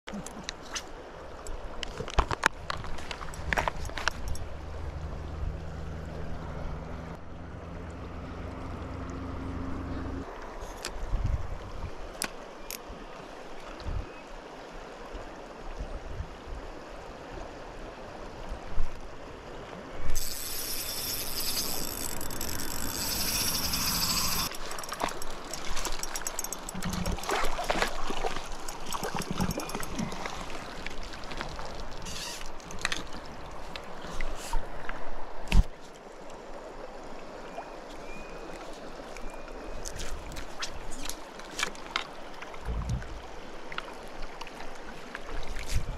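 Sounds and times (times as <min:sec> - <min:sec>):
river flowing over stones: 0:00.2 - 0:45.9
water splashing: 0:20.1 - 0:34.6.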